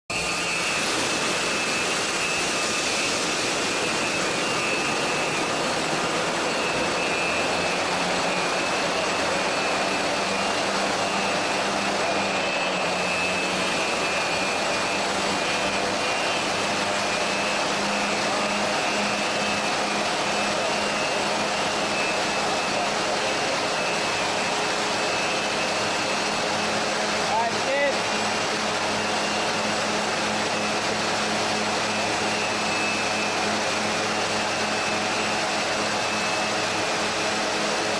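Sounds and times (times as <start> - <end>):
rushing air and spray: 0.1 - 19.7.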